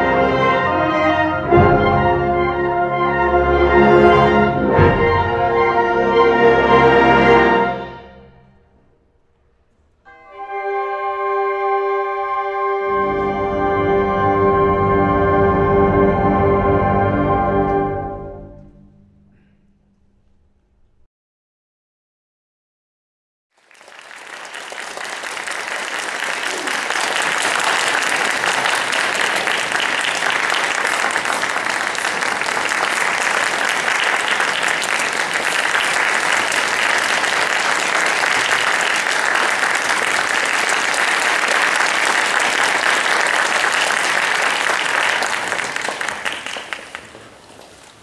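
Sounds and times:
audience applauding: 0:23.6 - 0:48.0.

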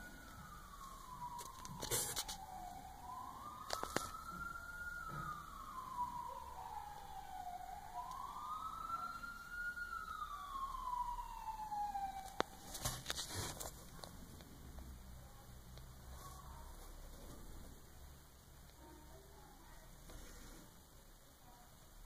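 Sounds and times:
emergency siren wailing: 0:00.0 - 0:13.2.

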